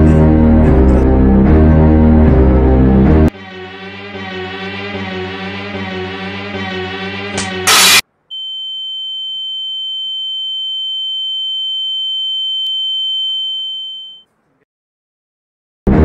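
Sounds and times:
high-pitched ringing tone: 0:07.7 - 0:14.3.

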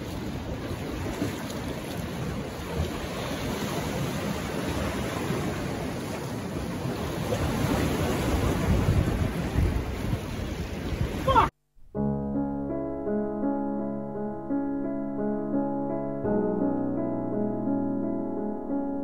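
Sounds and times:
ocean waves washing against rocks: 0:00.0 - 0:11.5
wind buffeting microphone: 0:00.0 - 0:11.5.

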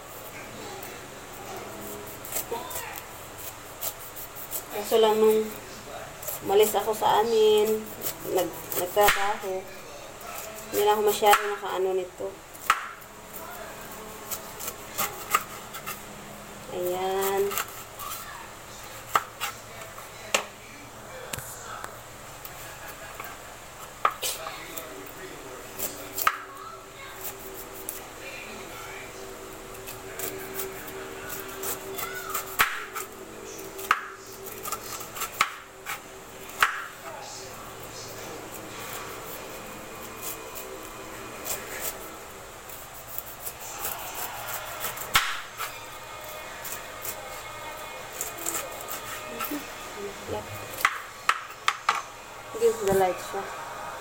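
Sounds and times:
knife cutting through pineapple rind: 0:00.1 - 0:09.5, 0:10.2 - 0:11.7, 0:12.6 - 0:16.2, 0:16.8 - 0:20.2, 0:22.4 - 0:28.4, 0:29.7 - 0:49.8.

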